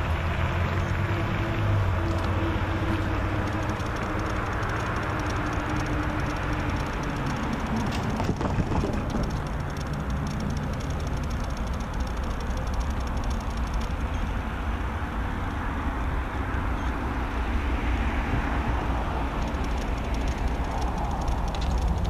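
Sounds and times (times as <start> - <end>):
distant diesel locomotive hum: 0.0 - 8.3
steady rumble: 0.0 - 22.0
faint clicks: 2.0 - 14.3, 19.0 - 22.0.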